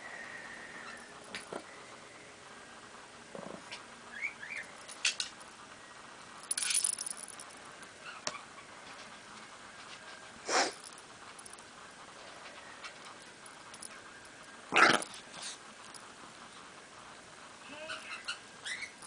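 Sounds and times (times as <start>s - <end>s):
jingling clicks and rattles: 6.4s - 7.8s, 10.8s - 14.4s, 15.8s - 16.4s
short high squeaks: 17.7s - 19.0s.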